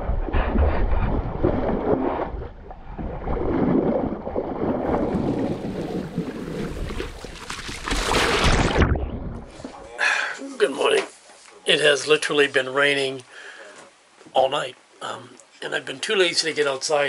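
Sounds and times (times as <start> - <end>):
water splashing along boat hull: 0.0 - 9.6.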